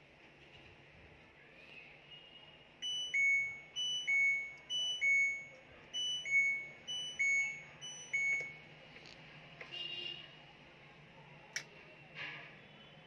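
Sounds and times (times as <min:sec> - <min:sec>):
washing machine buzzer beeping: 0:02.8 - 0:08.7.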